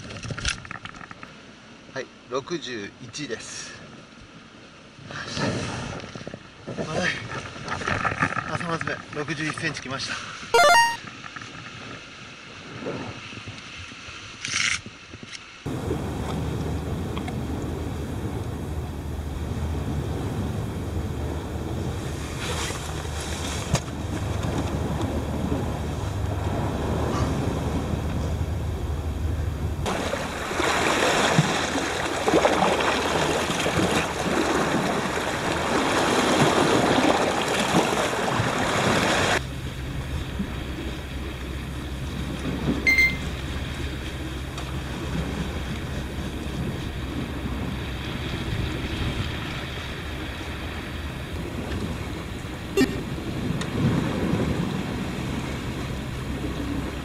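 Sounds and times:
surf on a rocky shore: 0.0s - 57.0s
wind: 0.0s - 57.0s
short high beep: 10.6s - 11.0s, 42.9s - 43.3s, 52.8s - 53.1s
low hum: 39.4s - 48.4s, 52.0s - 53.6s.

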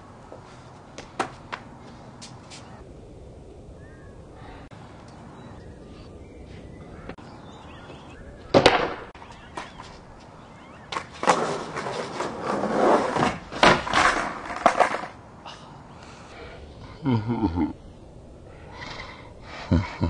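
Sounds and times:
skateboard clacking on concrete: 8.5s - 10.0s, 10.9s - 15.2s
skateboard wheels rolling: 8.5s - 15.2s.

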